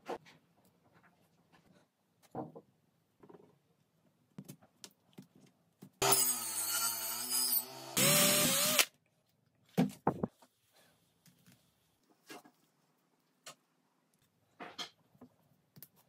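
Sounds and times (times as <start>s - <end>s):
power tool motor hum: 6.0s - 8.9s.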